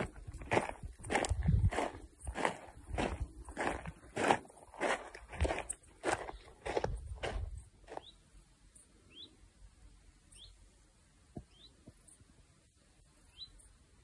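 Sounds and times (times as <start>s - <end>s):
footsteps on dirt path: 0.0s - 8.2s
bird chirping: 7.9s - 9.4s, 10.2s - 10.7s, 11.3s - 12.3s, 13.2s - 13.9s.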